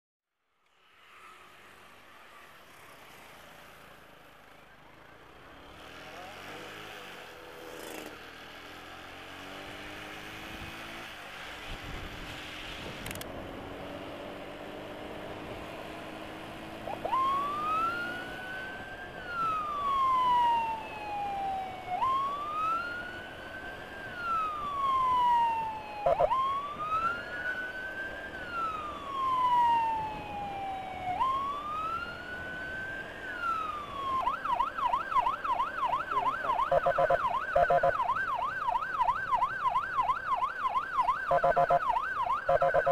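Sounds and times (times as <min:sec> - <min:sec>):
motorcycle riding: 0:00.8 - 0:42.9
electronic emergency siren wailing: 0:16.7 - 0:42.9.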